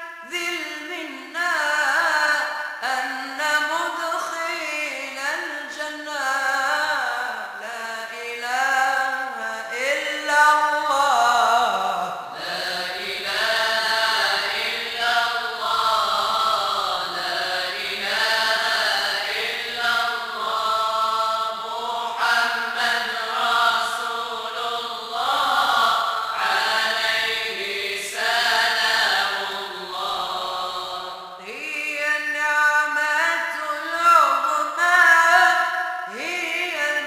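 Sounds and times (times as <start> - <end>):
group of voices chanting: 12.2 - 31.4.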